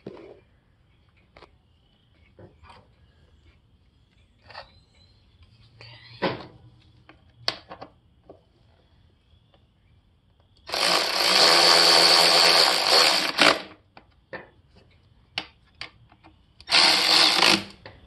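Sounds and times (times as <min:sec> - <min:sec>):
electric ratchet spinning: 0:10.7 - 0:13.7, 0:16.6 - 0:17.8.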